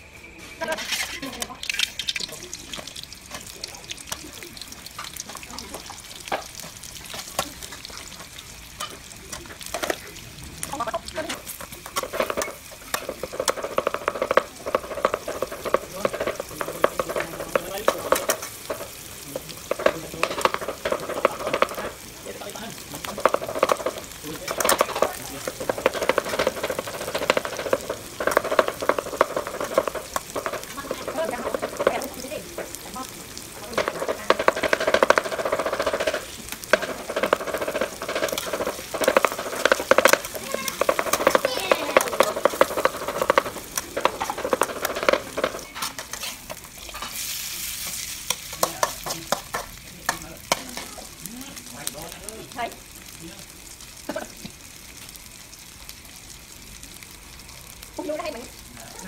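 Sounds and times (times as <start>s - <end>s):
oil sizzling: 0.0s - 59.0s
spatula scraping and clicking on pan: 23.0s - 50.9s.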